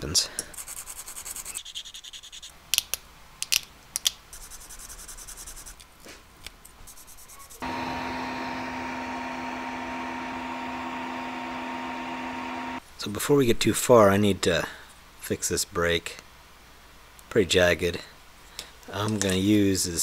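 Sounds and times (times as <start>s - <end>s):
hand scraping and sanding: 0.5s - 2.5s, 4.3s - 7.6s
high-pitched whine: 7.6s - 12.8s
printer fan and motor hum: 7.6s - 12.8s.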